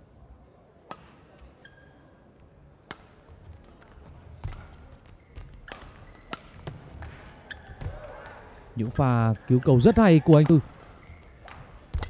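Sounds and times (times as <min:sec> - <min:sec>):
shoes squeaking on court: 0:01.4 - 0:02.2, 0:04.4 - 0:08.0, 0:09.4 - 0:12.0
racket hitting shuttlecock: 0:02.8 - 0:03.8, 0:05.7 - 0:08.4, 0:10.3 - 0:12.0.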